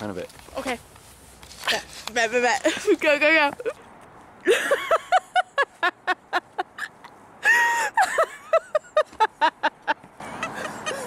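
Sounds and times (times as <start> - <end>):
woman laughing: 4.5 - 11.0.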